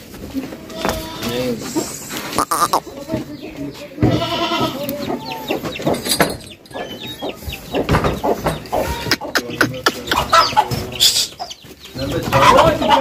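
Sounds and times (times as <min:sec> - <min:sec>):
goat bleating: 0:00.6 - 0:01.6, 0:02.3 - 0:02.9, 0:04.0 - 0:05.4
short animal calls: 0:02.4 - 0:02.9.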